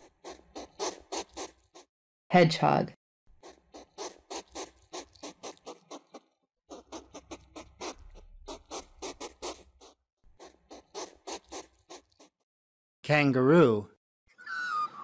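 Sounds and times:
hedgehog sniffing: 0.0s - 1.9s, 3.3s - 12.4s.

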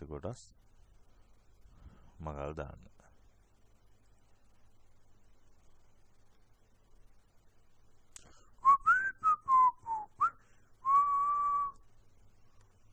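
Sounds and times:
person whistling a tune: 8.6s - 11.8s.

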